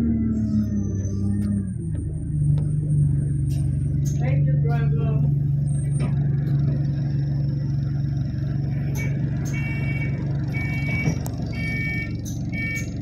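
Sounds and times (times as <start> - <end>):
bus engine drone: 0.0 - 13.0
electronic beeping: 8.9 - 13.0.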